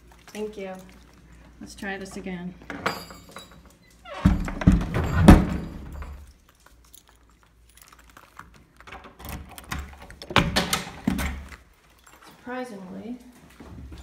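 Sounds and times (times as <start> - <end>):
wooden door knocks and clicks: 4.1 - 6.2, 8.9 - 11.5.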